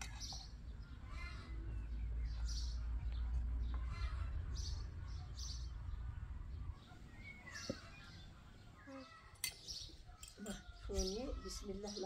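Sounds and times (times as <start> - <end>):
small birds chirping: 0.0 - 12.0
steady low rumble: 0.7 - 8.8.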